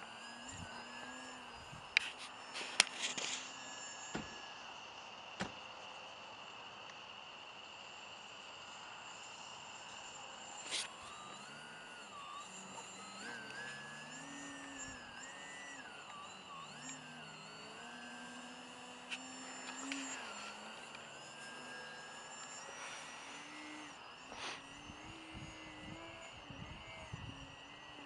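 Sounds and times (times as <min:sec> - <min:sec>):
model plane motor droning: 0:00.0 - 0:28.0
steady high tone: 0:08.7 - 0:28.0.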